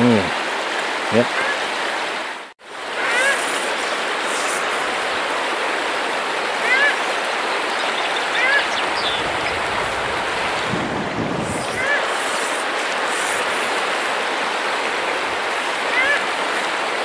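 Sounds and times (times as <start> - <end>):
stream running over gravel: 0.0 - 17.0
wind buffeting microphone: 8.8 - 12.0.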